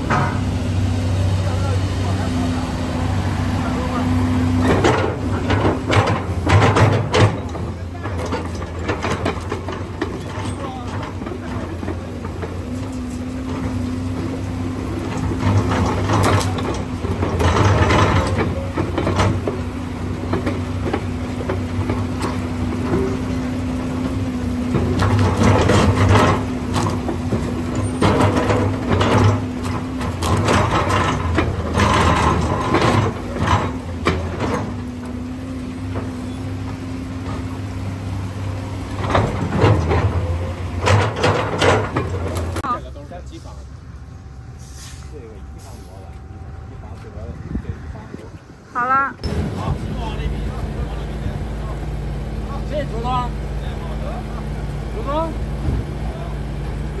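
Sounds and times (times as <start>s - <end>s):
metallic clanks from tracks: 0.0s - 0.7s, 3.8s - 36.5s, 38.9s - 43.6s
diesel engine rumble: 0.0s - 57.0s.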